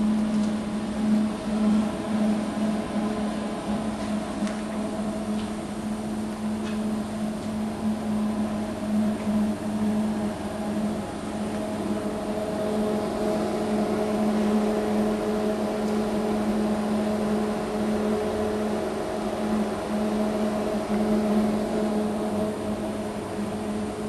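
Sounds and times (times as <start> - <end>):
machine humming: 0.0 - 24.0.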